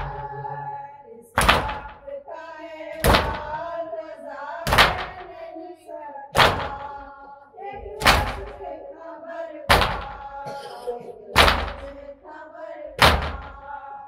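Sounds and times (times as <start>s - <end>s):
group slapping chests: 0.0s - 0.5s, 1.4s - 2.1s, 3.0s - 3.7s, 4.7s - 5.4s, 6.4s - 7.1s, 8.0s - 8.8s, 9.7s - 12.1s, 13.0s - 13.7s
voices chanting a lament: 0.0s - 14.0s.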